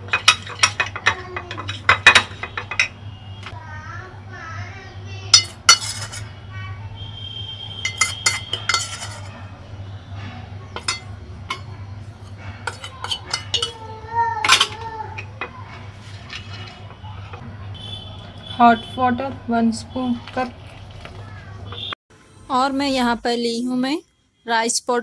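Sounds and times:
metal spoon clinking on glass: 0:00.0 - 0:03.0, 0:05.3 - 0:06.3, 0:07.8 - 0:09.4, 0:10.8 - 0:11.8, 0:12.6 - 0:13.8.

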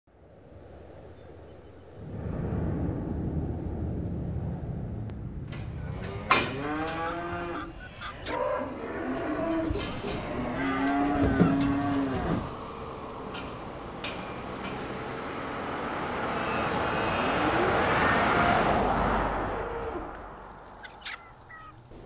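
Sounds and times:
low steady rumble: 0:01.9 - 0:06.3
cows mooing: 0:05.5 - 0:20.3.

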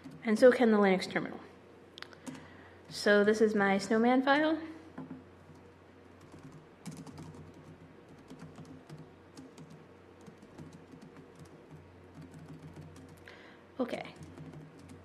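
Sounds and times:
laptop keys clicking: 0:00.0 - 0:00.2, 0:05.0 - 0:13.3, 0:14.2 - 0:15.0
steady low hum: 0:00.0 - 0:15.0.

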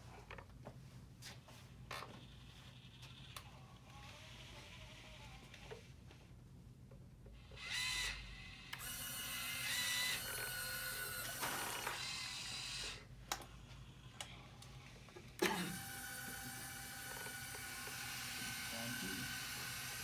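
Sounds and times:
winch motor whirring: 0:07.5 - 0:13.5, 0:14.1 - 0:20.0.

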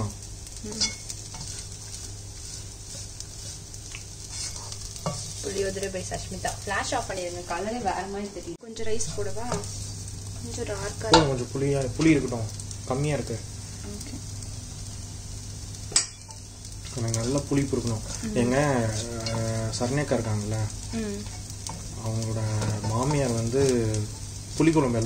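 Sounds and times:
spatula scraping rice in wok: 0:00.7 - 0:05.5.

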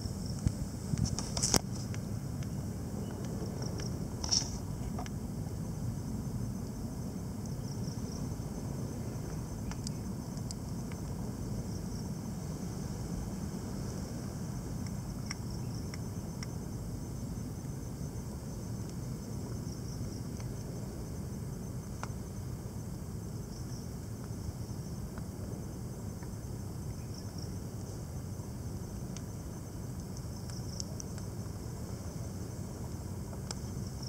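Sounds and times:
high insect-like trill: 0:00.0 - 0:21.8
low constant rumble: 0:00.0 - 0:34.0.

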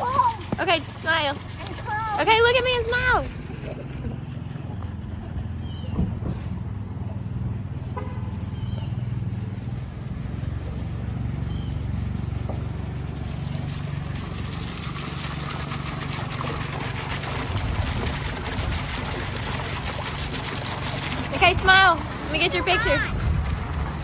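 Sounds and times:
fountain water splashing into basin: 0:00.0 - 0:24.0
low rumble of traffic: 0:00.0 - 0:24.0.

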